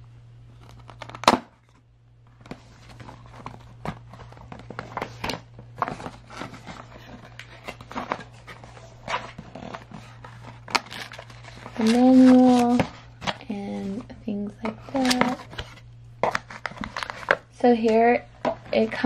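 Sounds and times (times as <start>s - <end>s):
cardboard scraping and crinkling: 2.4s - 17.4s.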